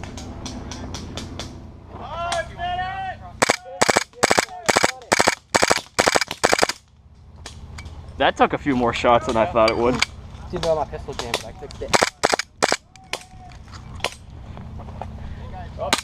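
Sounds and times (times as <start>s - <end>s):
airsoft pistol firing bursts: 3.4s - 6.8s, 11.9s - 12.8s.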